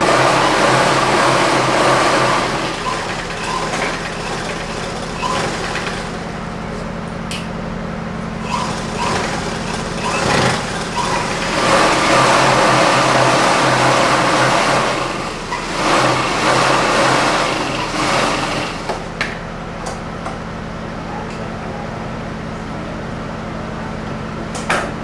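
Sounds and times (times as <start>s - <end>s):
sewing machine stitching: 0.0s - 6.3s, 8.4s - 19.1s.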